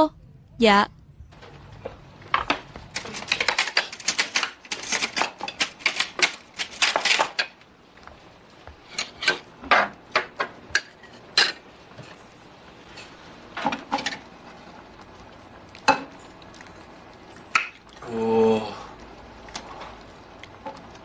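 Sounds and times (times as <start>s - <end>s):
utensils clinking: 2.9s - 7.6s, 8.9s - 9.9s.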